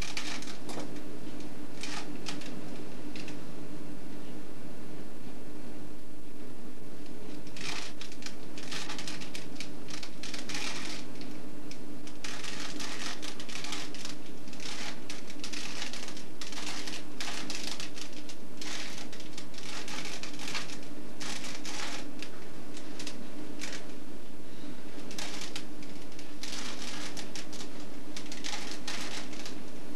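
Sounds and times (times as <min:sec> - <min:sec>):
puzzle cube clicking twists: 0:00.0 - 0:00.7, 0:07.4 - 0:11.4, 0:12.1 - 0:23.9, 0:25.0 - 0:29.6.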